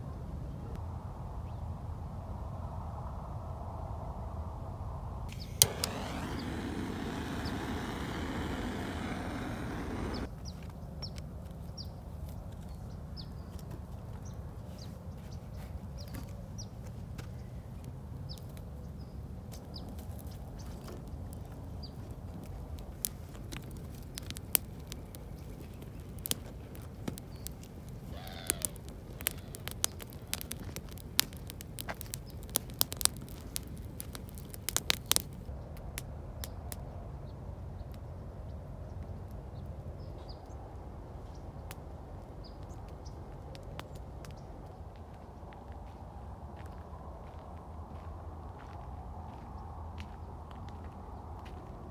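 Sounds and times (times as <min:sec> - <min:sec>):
butane torch hissing: 0:05.3 - 0:10.3
campfire crackling and popping: 0:05.3 - 0:10.3, 0:22.2 - 0:36.1.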